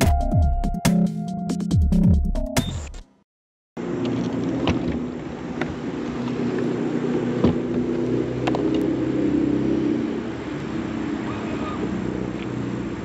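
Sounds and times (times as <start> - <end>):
boat motor humming: 3.8 - 13.0.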